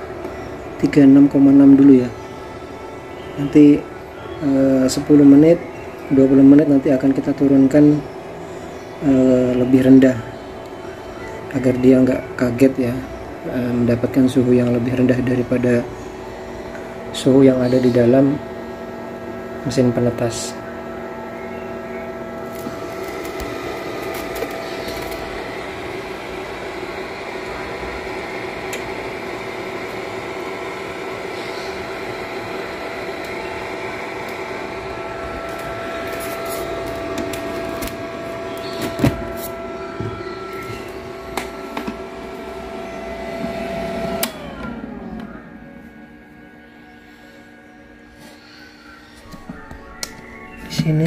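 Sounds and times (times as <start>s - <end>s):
fan motor humming: 0.0s - 51.0s.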